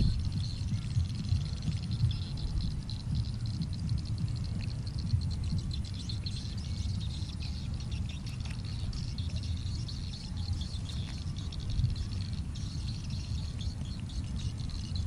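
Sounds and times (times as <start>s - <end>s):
insects chirping: 0.0s - 15.0s
low rumble: 0.0s - 15.0s.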